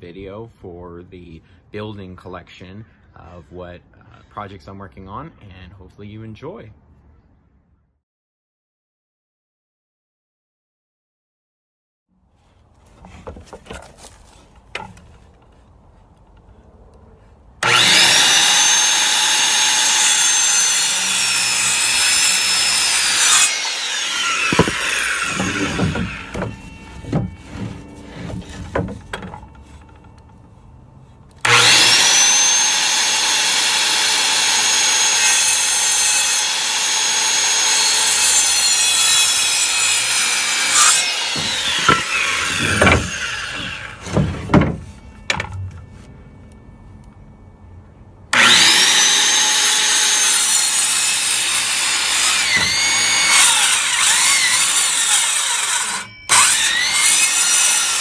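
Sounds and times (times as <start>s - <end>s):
knocks of wood being handled: 12.8s - 16.6s, 24.4s - 30.6s, 41.3s - 46.1s
circular saw cutting wood: 17.6s - 46.1s, 48.3s - 58.0s.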